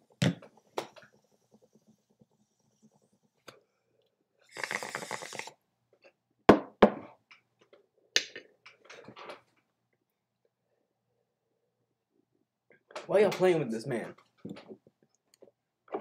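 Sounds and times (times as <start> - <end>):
rush of air through a bong: 4.5 - 5.5.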